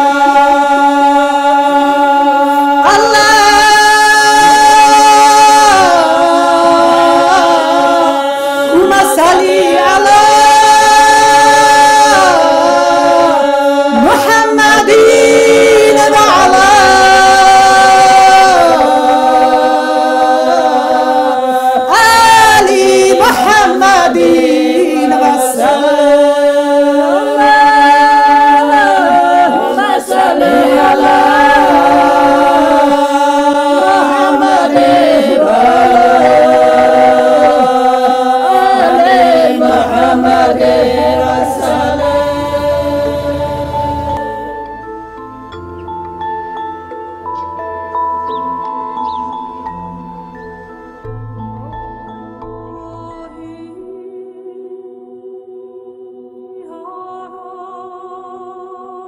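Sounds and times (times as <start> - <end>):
woman singing a wavering melody: 0.0 - 46.1, 52.4 - 55.4, 56.4 - 59.0
sung drone: 27.0 - 54.1.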